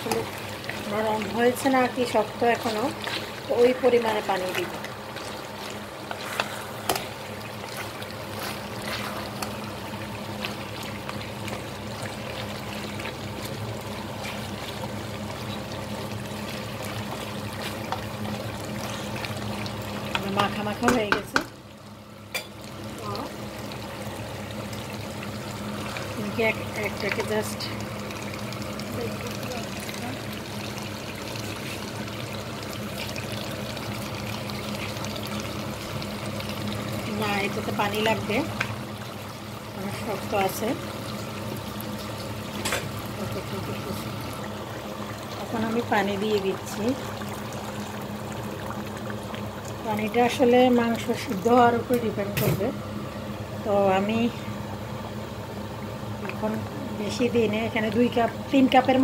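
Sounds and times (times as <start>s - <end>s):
spatula stirring: 0.0s - 15.0s
curry sizzling and bubbling: 0.0s - 59.0s
steady low hum: 0.0s - 59.0s.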